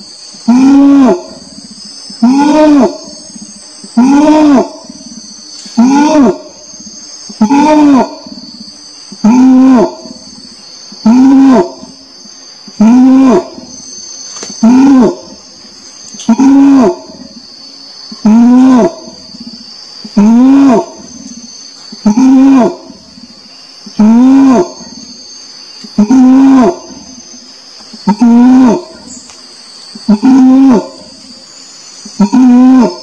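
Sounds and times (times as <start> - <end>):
high insect hum: 0.0 - 33.0
orangutan calling: 0.3 - 29.3, 29.9 - 33.0.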